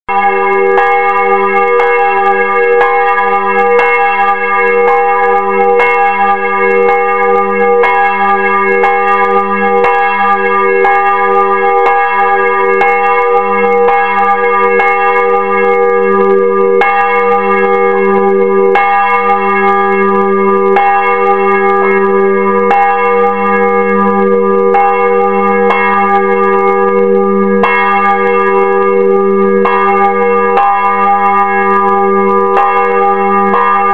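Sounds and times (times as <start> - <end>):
church bell ringing: 0.1 - 33.9.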